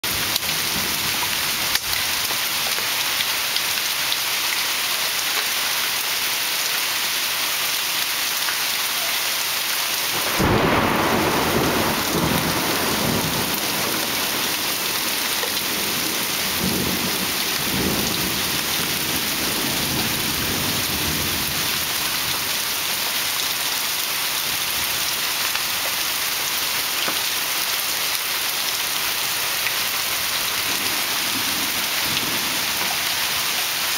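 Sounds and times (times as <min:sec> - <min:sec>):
heavy rain pouring: 0:00.0 - 0:33.9
thunder clap and rumble: 0:10.1 - 0:21.6, 0:30.6 - 0:33.0.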